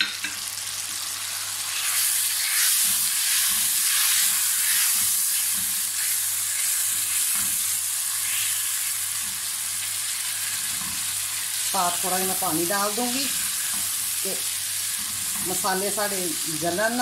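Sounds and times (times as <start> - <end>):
meat sizzling in oil: 0.0 - 17.0
spatula scraping wok: 1.7 - 9.0.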